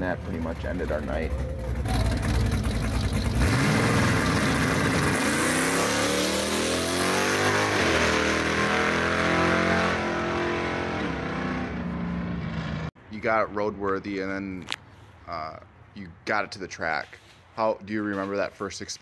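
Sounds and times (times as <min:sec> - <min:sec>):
car engine accelerating hard: 0:01.2 - 0:12.8.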